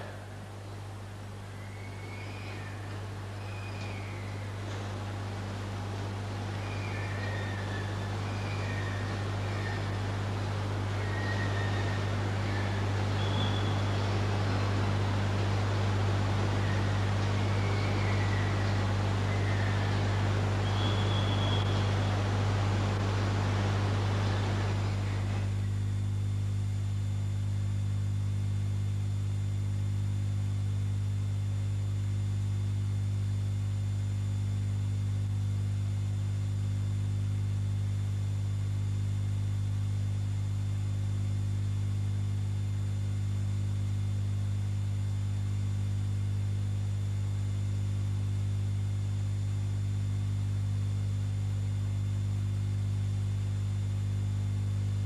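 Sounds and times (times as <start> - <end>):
electrical mains hum: 0.0 - 55.0.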